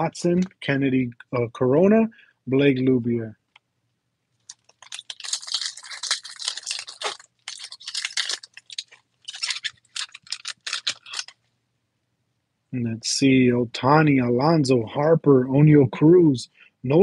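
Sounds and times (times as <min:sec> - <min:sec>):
foil wrapper tearing and crinkling: 0:04.4 - 0:11.4.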